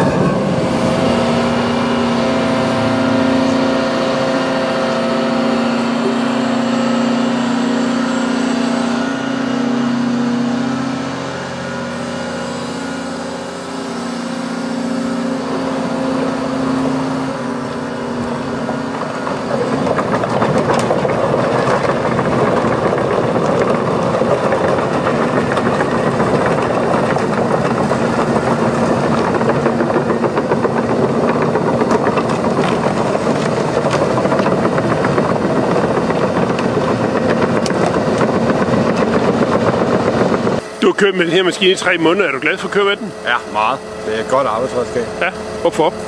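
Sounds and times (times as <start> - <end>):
excavator engine drone: 0.0 - 46.0
clattering and rattling: 18.1 - 40.6.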